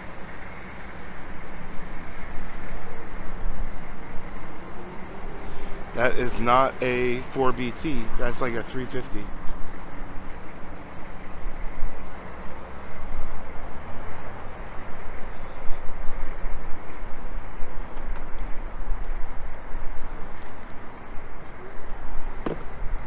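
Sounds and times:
truck engine pulling away: 0.0s - 16.8s.

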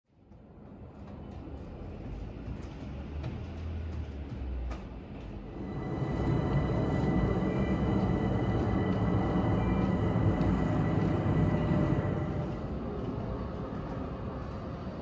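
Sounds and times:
high whine: 5.4s - 13.4s.

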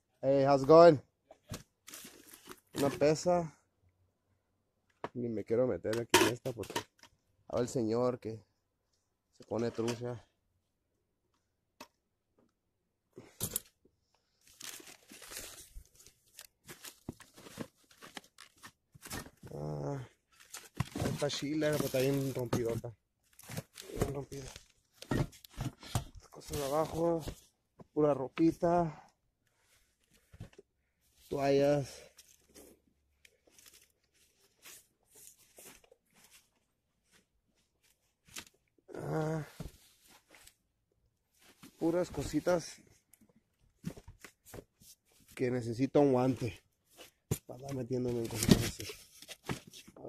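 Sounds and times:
rustling clothes and plastic: 1.3s - 3.4s, 13.2s - 28.9s, 29.6s - 40.7s, 41.3s - 50.0s
rustling of clothes: 20.4s - 28.8s, 29.6s - 38.6s.

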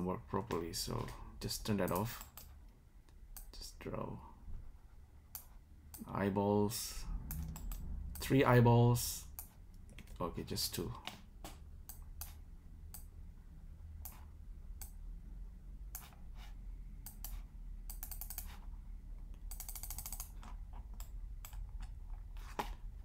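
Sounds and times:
low steady hum: 0.0s - 23.0s
keyboard and mouse clicks: 1.8s - 3.5s, 7.2s - 8.3s, 14.0s - 15.0s, 17.0s - 22.8s
mouse scroll wheel ticking: 17.1s - 18.6s, 19.4s - 21.6s.

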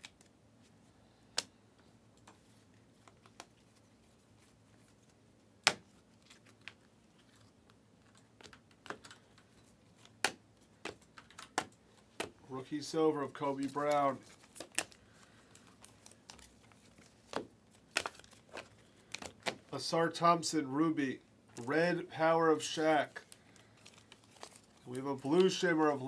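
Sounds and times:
trading cards clicking and snapping: 5.6s - 12.4s, 13.8s - 19.7s.

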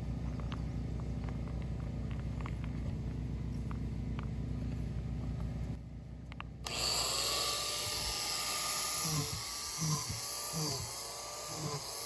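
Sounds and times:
high-pitched power drill: 6.6s - 12.0s.

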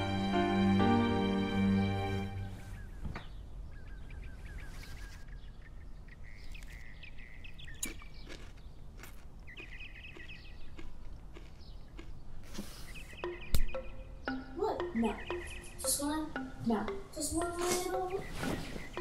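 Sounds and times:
small birds chirping: 2.2s - 19.0s
sharp clicks: 13.2s - 14.4s.

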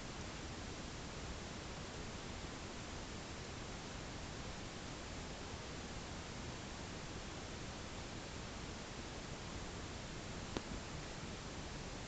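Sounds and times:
low recording hiss: 0.0s - 12.0s.

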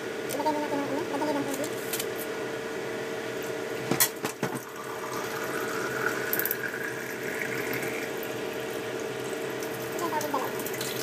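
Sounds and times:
running water: 4.7s - 11.0s.

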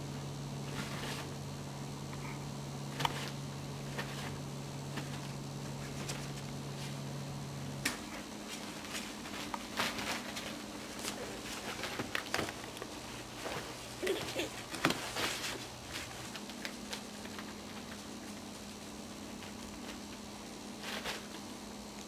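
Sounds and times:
puppy paws scrabbling on plastic: 2.9s - 7.0s, 7.8s - 21.5s.

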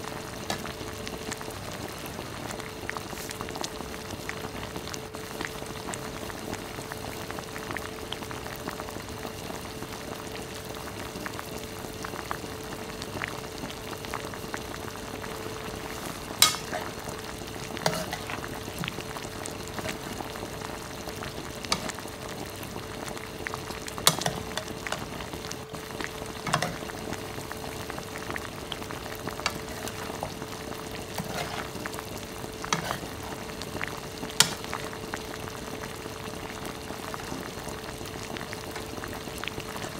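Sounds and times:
chicken sizzling in a pan: 0.0s - 39.9s
faint steady hum: 0.0s - 39.9s
spatula scraping a pan: 17.9s - 18.4s, 31.1s - 31.8s, 32.7s - 33.2s.

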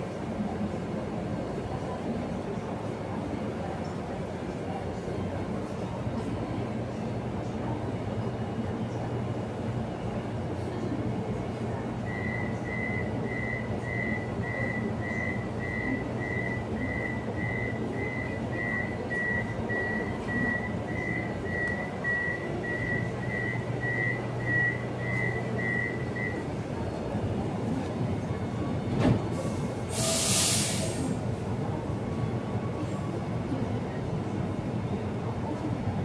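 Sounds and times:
low hum of stopped train: 0.0s - 36.0s
train door warning beeps: 12.0s - 26.5s, 28.8s - 31.2s.

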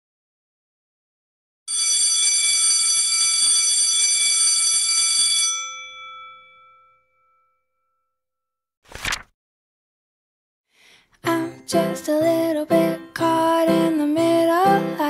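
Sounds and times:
electric bell ringing: 1.7s - 7.7s.

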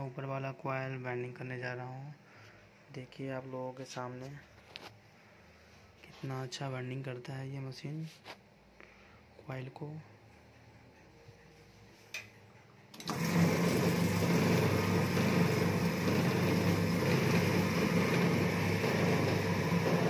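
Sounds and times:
coil winding machine running: 12.9s - 20.0s.

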